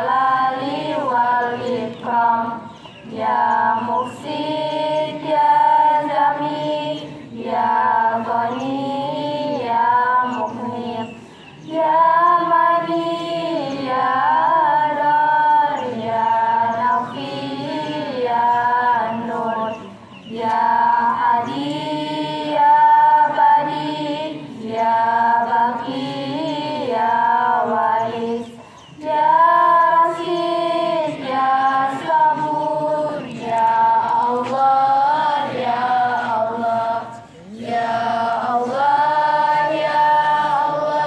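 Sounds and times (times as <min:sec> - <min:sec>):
female voices singing a chant: 0:00.0 - 0:41.0.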